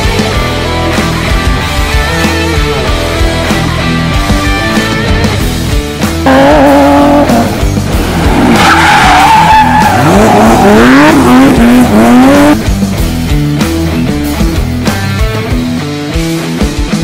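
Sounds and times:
rock music: 0:00.0 - 0:17.0
race car engine revving: 0:06.2 - 0:13.2.

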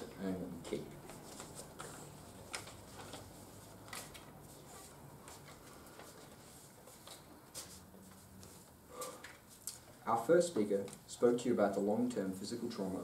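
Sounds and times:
paper cards handled: 0:00.7 - 0:08.6.

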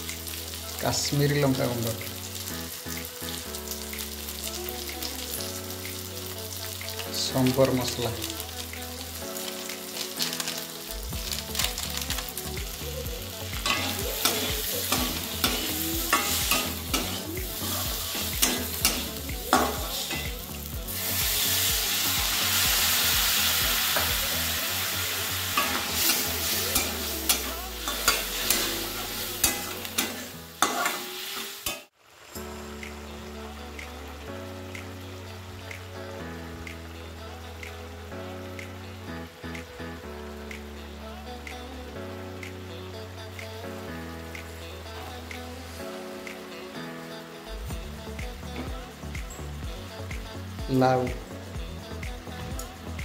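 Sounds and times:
masala sizzling in oil: 0:00.0 - 0:40.8, 0:44.2 - 0:53.0
spatula scraping metal pan: 0:25.5 - 0:31.9.

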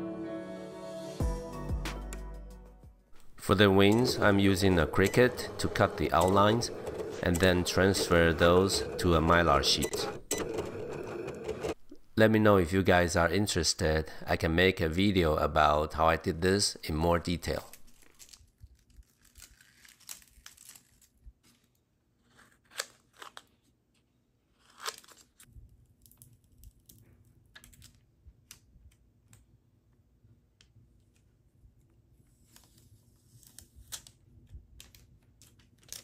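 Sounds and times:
plastic sheet crackling: 0:17.5 - 0:21.8.

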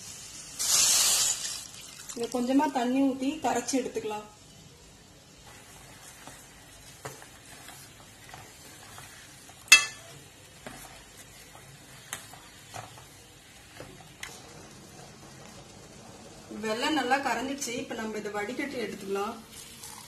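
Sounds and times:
faint steady hiss: 0:00.0 - 0:20.0
ladle stirring in a pan: 0:04.5 - 0:17.4
ladle clinking against pan: 0:09.7 - 0:10.1.

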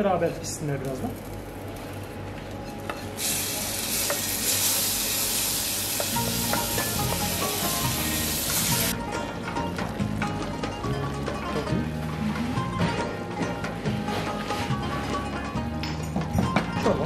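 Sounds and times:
hot butter sizzling in soup: 0:03.0 - 0:09.0.

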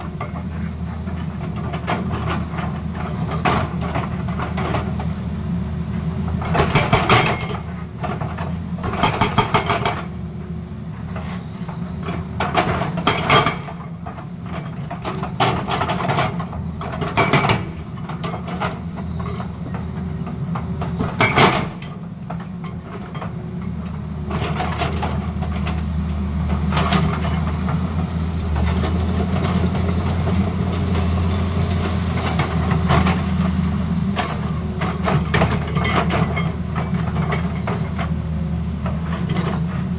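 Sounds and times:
diesel engine running: 0:00.0 - 0:39.9
hydraulic rock breaker hammering rock: 0:06.3 - 0:10.2, 0:11.3 - 0:23.4, 0:31.8 - 0:38.2.

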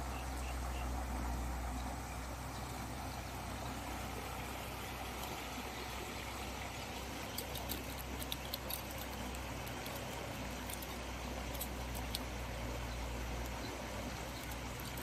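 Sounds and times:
clicks on gravelly ground: 0:06.8 - 0:12.4, 0:13.4 - 0:15.0.

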